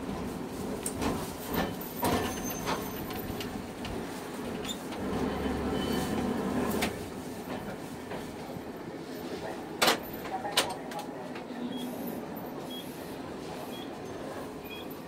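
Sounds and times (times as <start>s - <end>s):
tram rattling: 0.0s - 11.6s.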